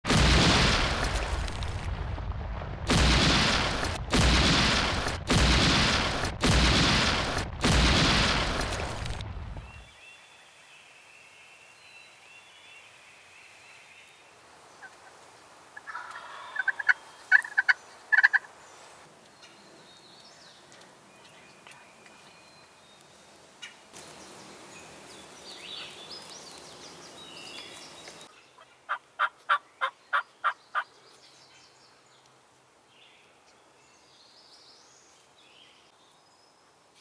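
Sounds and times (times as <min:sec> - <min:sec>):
turkey gobbling: 0:15.8 - 0:18.5, 0:28.9 - 0:30.6.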